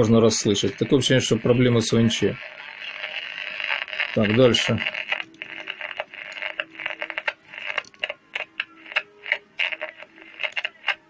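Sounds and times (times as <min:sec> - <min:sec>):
distorted radio signal: 0:00.0 - 0:11.0
radio static crackling: 0:00.0 - 0:11.0.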